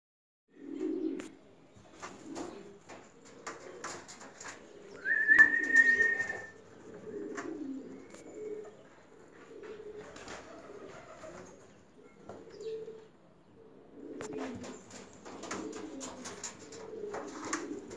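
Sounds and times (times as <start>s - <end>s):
pigeons cooing: 0.5s - 17.9s
high whistle-like tone: 5.0s - 6.6s.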